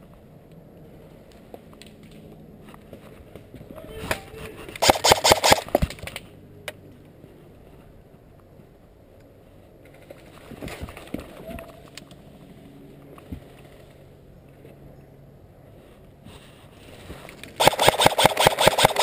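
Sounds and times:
sharp clicks from rifle: 4.8s - 6.2s, 17.6s - 19.0s.

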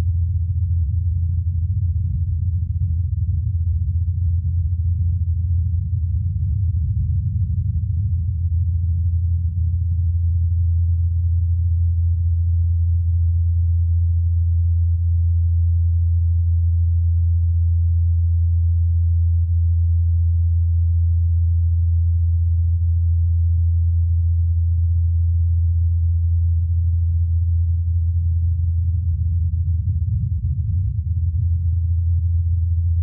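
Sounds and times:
helicopter rotor low hum: 28.2s - 32.6s.

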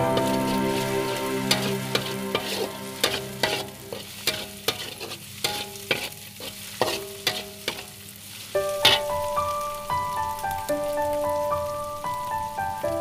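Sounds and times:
eggs sizzling in hot oil: 0.0s - 13.0s
spatula scraping a wok: 0.1s - 9.1s.

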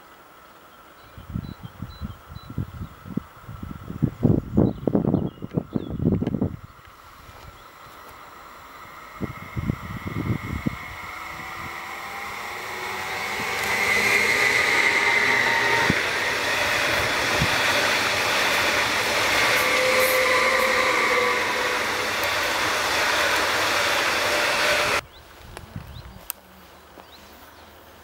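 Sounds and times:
high whine of train drives: 3.3s - 25.0s
train wheels rushing on rails: 6.8s - 25.0s.

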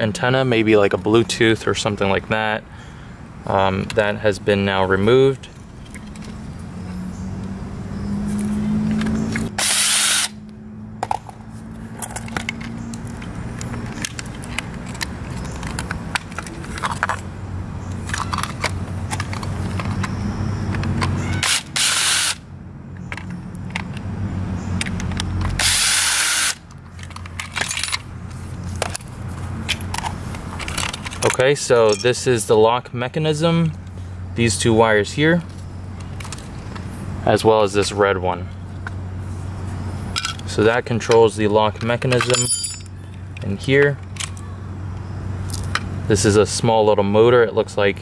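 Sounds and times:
clicks of parts being handled: 5.5s - 6.4s, 8.3s - 9.5s, 11.0s - 17.2s, 17.8s - 21.2s, 23.0s - 24.1s, 24.7s - 25.6s, 26.7s - 32.2s, 35.4s - 36.9s, 40.1s - 45.9s
power screwdriver running: 9.6s - 10.4s, 21.4s - 22.4s, 25.6s - 26.6s.

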